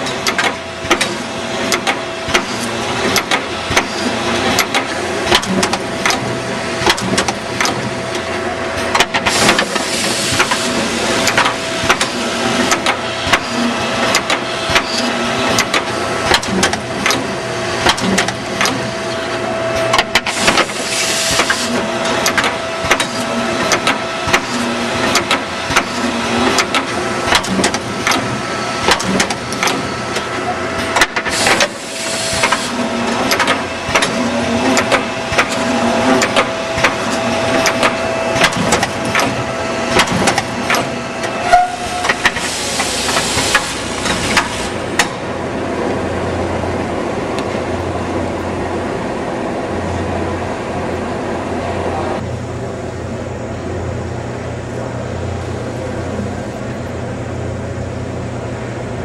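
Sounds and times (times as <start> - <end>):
machine clattering and clicking: 0.0 - 18.9, 19.9 - 41.4, 42.0 - 45.2
pneumatic air hiss: 8.8 - 15.7, 20.1 - 26.7, 30.9 - 36.2, 41.3 - 44.8.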